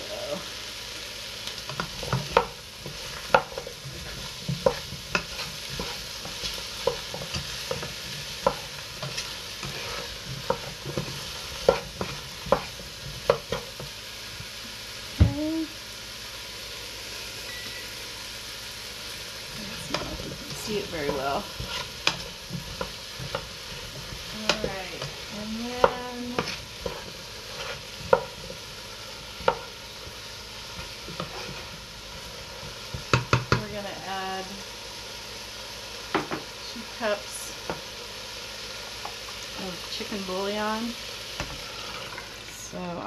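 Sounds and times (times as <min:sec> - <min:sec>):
vegetables sizzling in a pot: 0:00.0 - 0:43.0
wooden spoon scraping a pot: 0:01.7 - 0:13.9, 0:19.5 - 0:33.8, 0:41.4 - 0:42.4.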